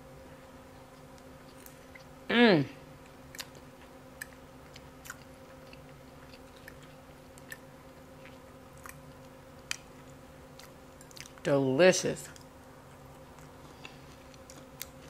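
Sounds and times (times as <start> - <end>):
close chewing of food: 3.0 - 11.5, 12.2 - 15.0.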